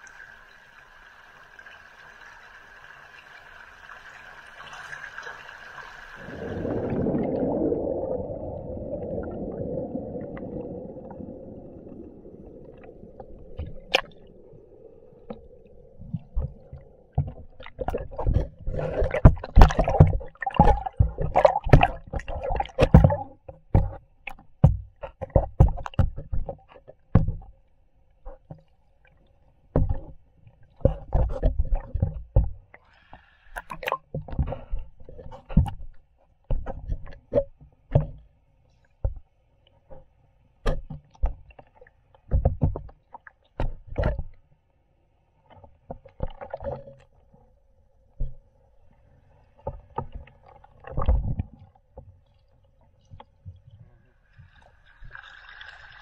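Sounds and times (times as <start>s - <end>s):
flowing water hiss: 0.0s - 17.9s
muffled underwater rushing: 4.4s - 27.4s
camera knocks and thumps underwater: 6.2s - 27.6s, 29.7s - 32.8s, 33.6s - 38.3s, 39.0s - 39.3s, 39.9s - 44.4s, 45.5s - 47.0s, 48.1s - 48.6s, 49.6s - 52.2s.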